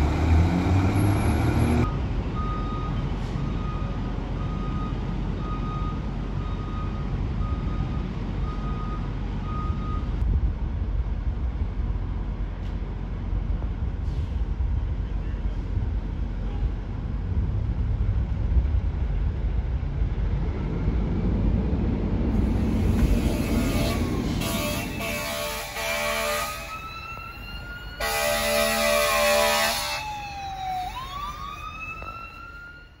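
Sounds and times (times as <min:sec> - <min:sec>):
fire engine rumble: 0:00.0 - 0:33.0
emergency siren sweeping: 0:22.4 - 0:33.0
air horn blasts: 0:22.6 - 0:26.9, 0:28.0 - 0:30.2.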